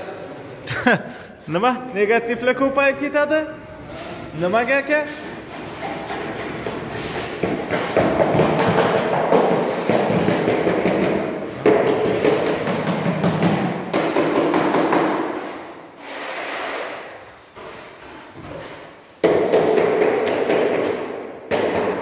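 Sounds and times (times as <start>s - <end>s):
rapid hammering knocks: 5.2s - 15.3s.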